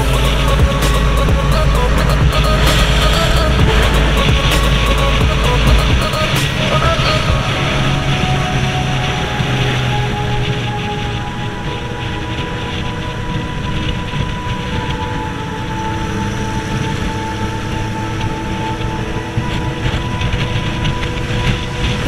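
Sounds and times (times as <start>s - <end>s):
motorcycle engine running: 0.0s - 6.7s
wind rush: 0.0s - 22.0s.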